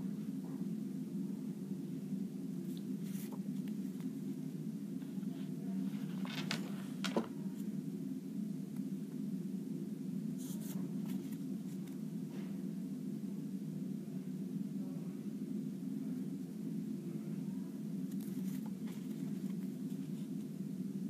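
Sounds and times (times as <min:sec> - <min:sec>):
steady low hum: 0:00.0 - 0:21.0
cardboard cards rustling: 0:05.2 - 0:07.3, 0:18.1 - 0:20.1.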